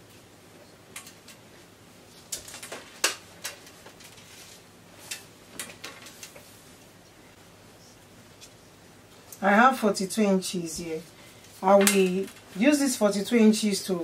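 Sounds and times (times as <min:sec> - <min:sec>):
fabric rustling: 0:03.7 - 0:05.1.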